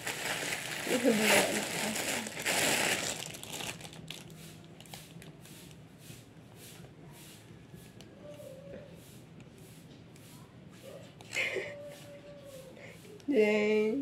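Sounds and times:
plastic bag crinkling: 0.0s - 5.3s.

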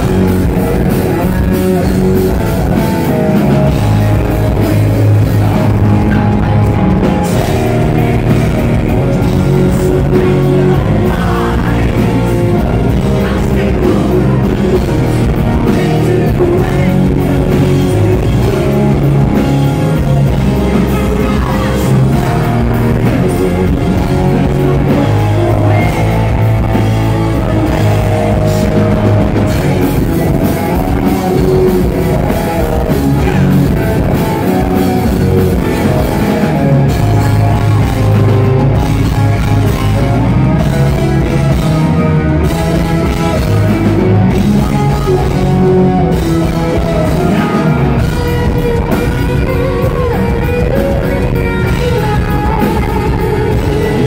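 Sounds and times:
live hard rock band: 0.0s - 54.0s
male lead vocals: 0.0s - 54.0s.

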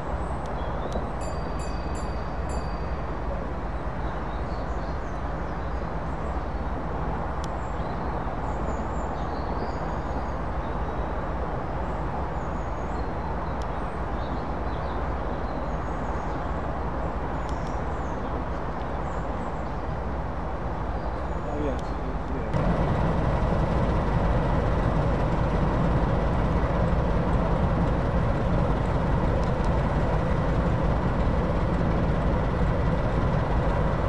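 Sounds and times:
diesel locomotives idling: 22.6s - 34.0s.

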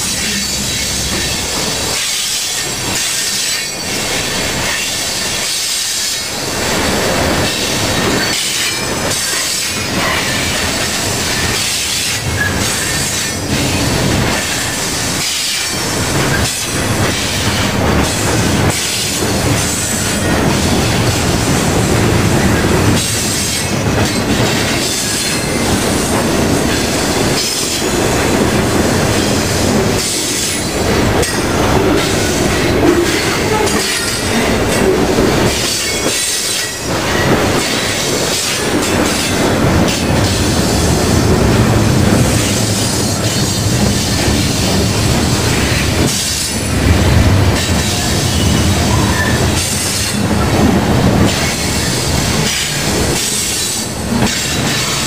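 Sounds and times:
train wheels rumbling on rails: 0.0s - 55.0s
wheels clacking on rail joints: 0.0s - 55.0s.

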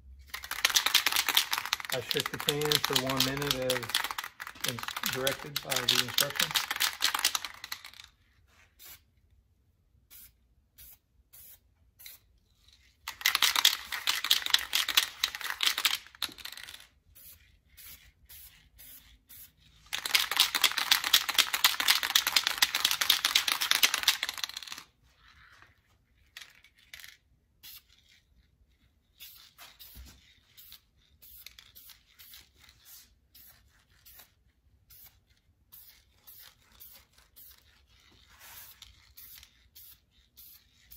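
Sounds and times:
aerosol can spraying: 38.3s - 40.9s.

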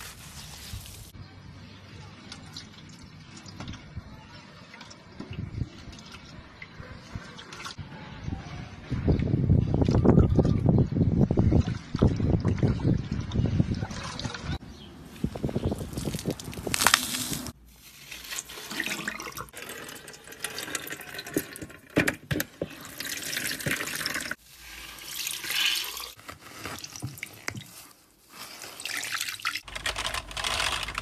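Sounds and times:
wet foam crackling and squishing: 15.3s - 19.5s.

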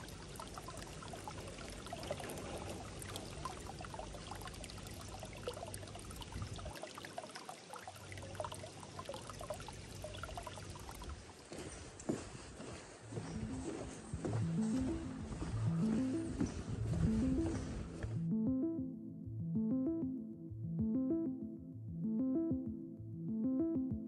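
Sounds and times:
stream trickling and babbling: 0.0s - 18.1s.

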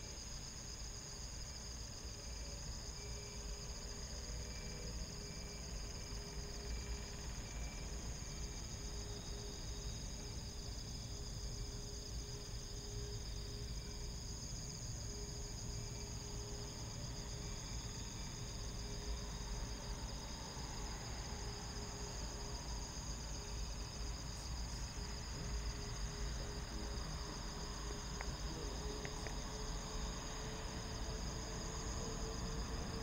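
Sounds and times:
insects chirring: 0.0s - 33.0s.

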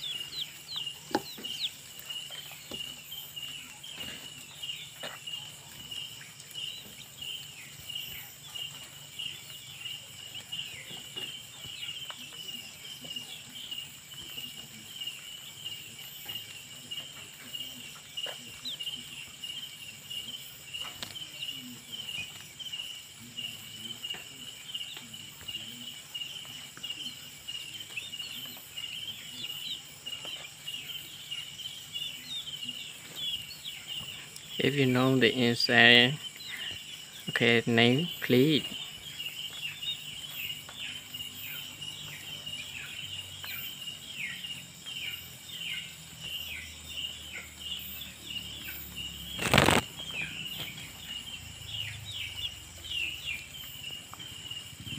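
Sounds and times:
chickens pecking ground taps: 0.0s - 19.2s, 20.1s - 22.8s, 23.4s - 31.2s, 32.0s - 43.8s, 47.3s - 51.1s
crickets chirping: 0.0s - 54.9s.

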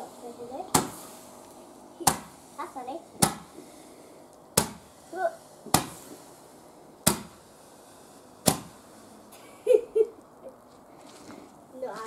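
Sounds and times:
firework bangs: 2.0s - 2.5s, 4.6s - 6.4s, 7.0s - 8.9s.

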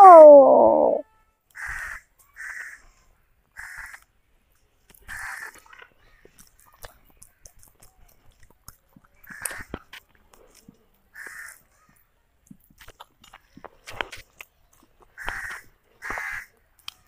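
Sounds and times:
crow cawing: 1.6s - 2.8s, 3.6s - 4.0s, 11.2s - 11.6s, 15.2s - 16.5s
chewing: 6.4s - 11.0s, 12.4s - 15.2s.

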